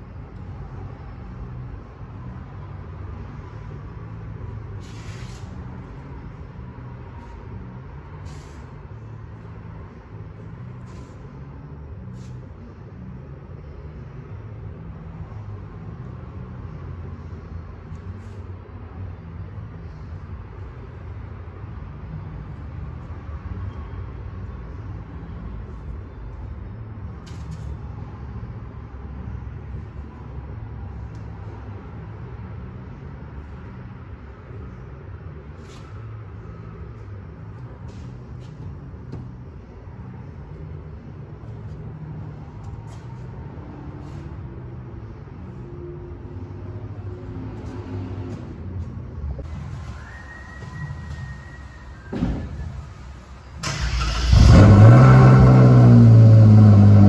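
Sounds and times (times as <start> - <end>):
low hum of shop machinery: 0.0 - 53.6
workshop low rumble: 0.0 - 53.6
short bursts of hiss: 4.8 - 5.5.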